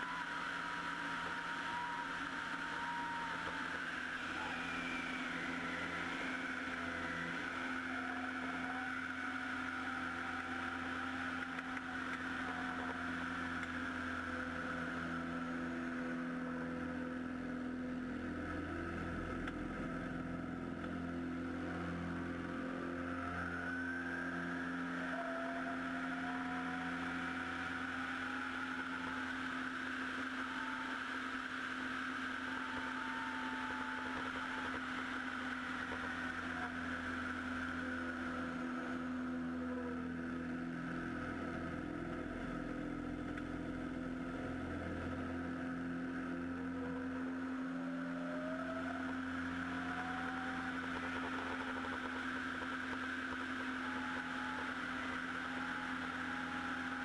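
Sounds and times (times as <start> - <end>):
plane engine and propeller droning: 0.0 - 57.0.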